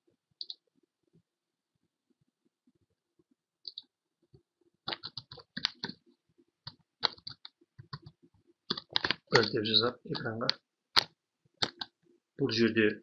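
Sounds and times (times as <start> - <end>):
mouse clicks: 0.4 - 0.6, 3.6 - 3.9, 10.2 - 12.0
keyboard typing: 4.9 - 6.0, 6.6 - 9.6, 10.2 - 11.9.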